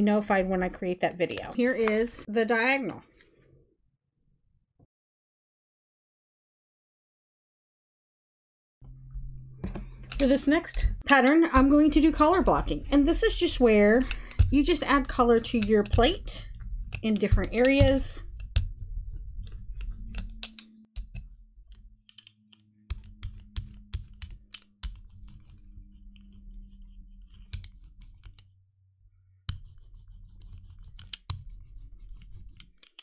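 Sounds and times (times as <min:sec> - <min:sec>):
rubber roller clicking on paint: 0:14.2 - 0:28.5, 0:29.5 - 0:33.0.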